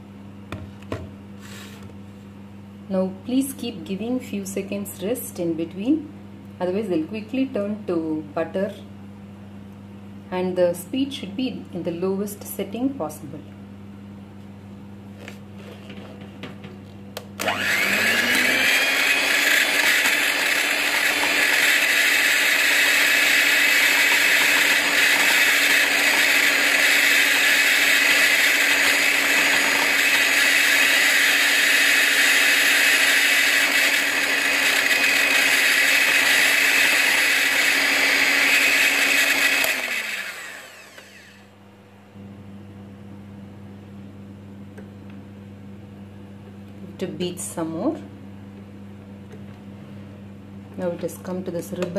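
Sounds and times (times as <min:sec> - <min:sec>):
beaters whipping cream in glass bowl: 0:17.4 - 0:41.3
electric hand mixer whining: 0:17.4 - 0:41.5.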